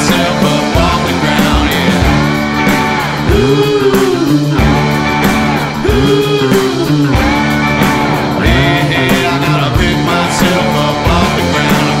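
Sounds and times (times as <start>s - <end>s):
rock music with guitar: 0.0s - 12.0s.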